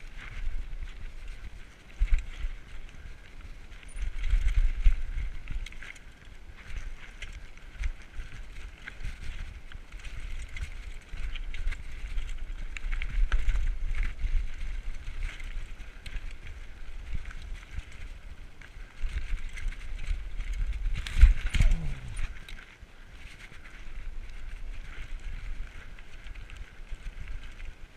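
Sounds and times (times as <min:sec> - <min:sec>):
bike clattering and rattling: 0:00.0 - 0:27.9
low microphone rumble: 0:20.0 - 0:23.1.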